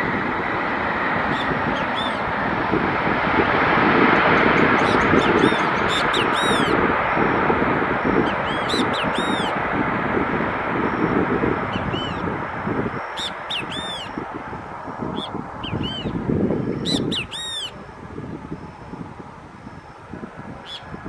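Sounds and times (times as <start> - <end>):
jet engines rushing: 0.0 - 21.0
birds sharp repeated calls: 4.5 - 6.8, 8.3 - 9.5, 13.0 - 14.2, 16.8 - 17.8.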